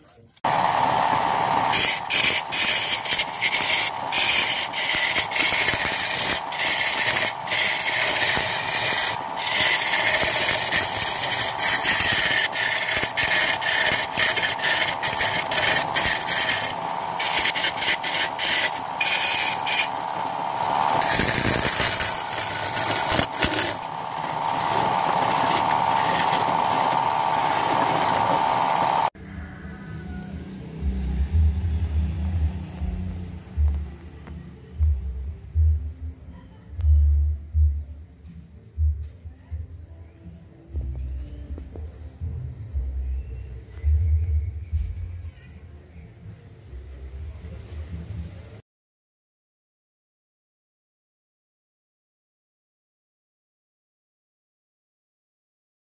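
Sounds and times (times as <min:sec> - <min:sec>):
lathe motor hum: 0:00.5 - 0:29.2
chisel scraping spinning wood: 0:01.6 - 0:20.1, 0:20.7 - 0:29.1.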